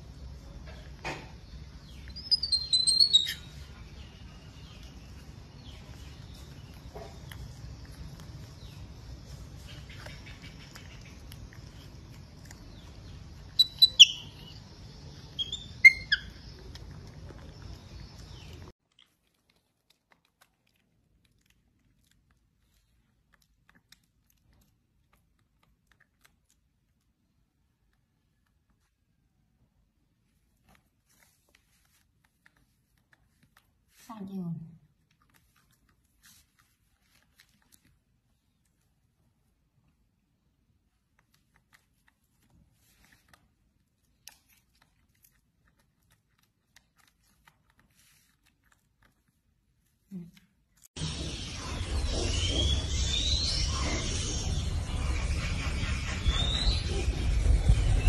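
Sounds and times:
clicks of hands peeling seed pods: 4.6 - 20.6
baby monkey chewing clicks: 9.6 - 14.6, 44.0 - 49.3.

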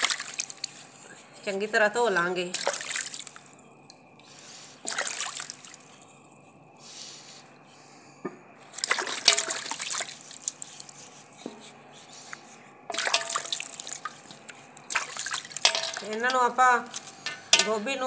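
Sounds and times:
water splashing and trickling: 0.0 - 0.8, 2.5 - 3.5, 4.8 - 5.9, 8.8 - 10.6, 12.9 - 17.2.

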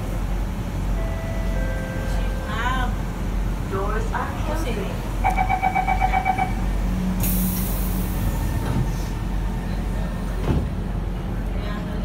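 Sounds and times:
train low hum: 0.0 - 12.0
rapid door warning beeps: 5.2 - 6.6.

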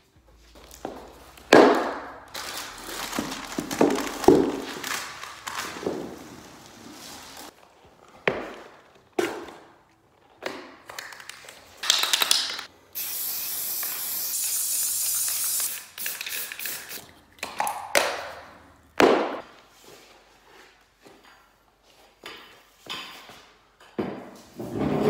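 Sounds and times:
spray paint can hissing: 13.0 - 17.1.

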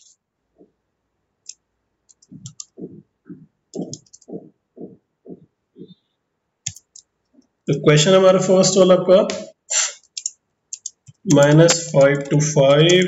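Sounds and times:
dull typing thumps: 2.1 - 6.0, 10.0 - 13.0
keyboard key clicks: 6.7 - 7.1.

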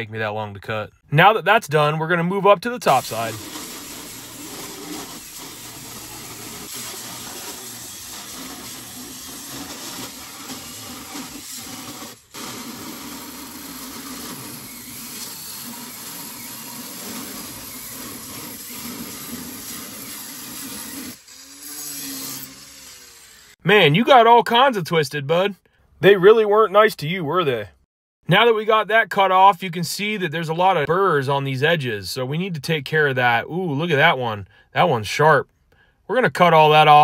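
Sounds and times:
angle grinder cutting metal: 2.9 - 23.6.

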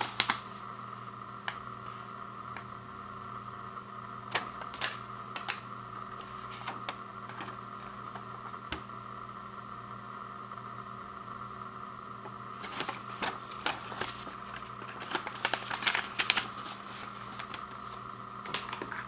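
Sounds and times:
paper crinkling and snapping: 0.0 - 0.6, 4.3 - 8.3, 12.5 - 19.0
steady background hum: 0.0 - 19.0.

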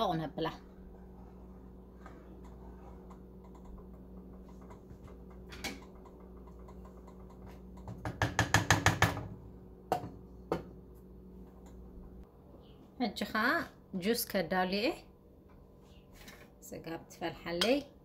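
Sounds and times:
low hum: 0.0 - 7.9.

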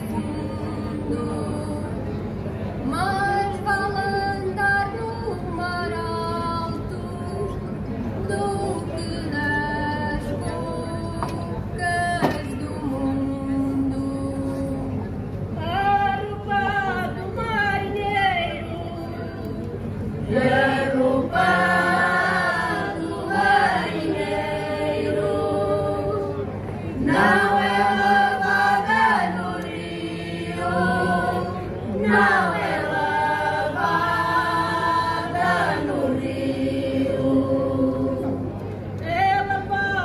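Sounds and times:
choir singing unaccompanied: 20.2 - 40.0.

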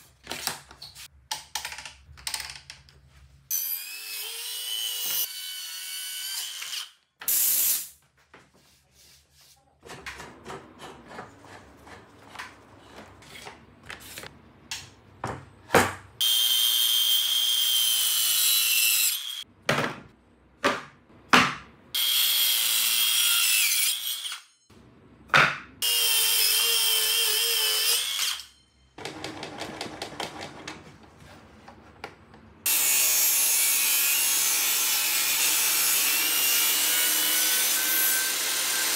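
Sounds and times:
table saw cutting board: 3.5 - 7.9, 25.4 - 30.4, 32.6 - 38.9
circular saw cutting: 32.7 - 38.9.

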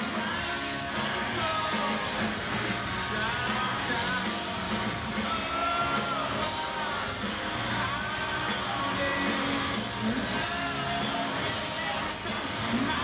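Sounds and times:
bass: 0.0 - 13.0
distorted electric guitars: 0.0 - 13.0
drums: 0.0 - 13.0
person singing: 2.8 - 13.0.

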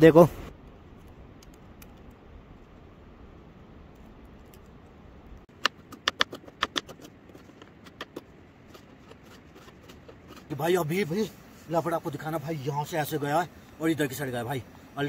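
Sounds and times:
sharp light clicks and taps: 1.0 - 2.2
faint steady hiss: 7.7 - 15.0.

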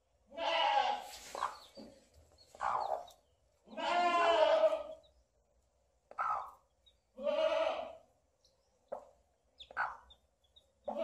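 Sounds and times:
chicks peeping: 1.0 - 3.6, 6.0 - 7.1, 8.4 - 11.0
farm animal calling: 2.5 - 5.1, 6.1 - 8.0, 9.6 - 10.2.

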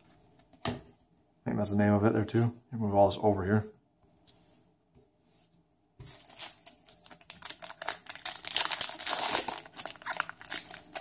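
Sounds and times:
foil wrappers crinkling: 6.1 - 11.0.

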